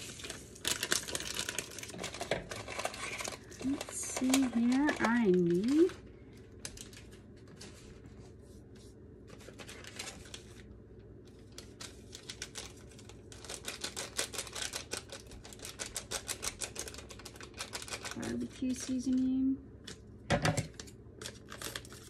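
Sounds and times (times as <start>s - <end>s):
seasoning packet shaken: 0.0s - 6.0s, 11.8s - 19.2s
plastic packets crinkling: 0.0s - 7.7s, 9.3s - 10.7s, 11.3s - 19.3s, 20.7s - 22.0s.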